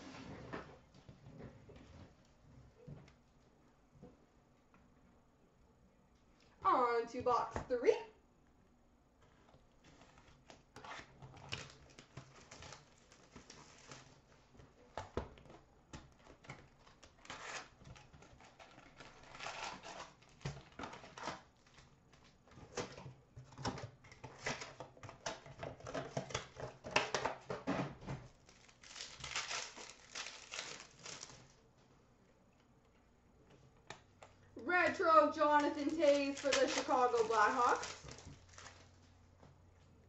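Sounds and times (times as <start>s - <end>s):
wrappers crinkling and tearing: 9.9s - 14.3s, 16.1s - 23.0s, 28.4s - 31.6s, 35.1s - 39.1s.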